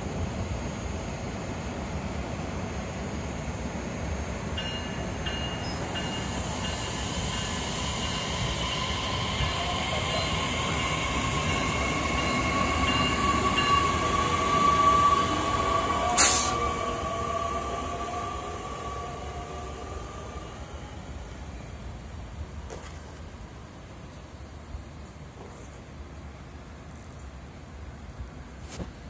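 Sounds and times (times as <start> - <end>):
electric train rumbling past: 0.0 - 22.6
high whining tones: 4.6 - 21.8
sharp burst of hissing: 16.1 - 16.7.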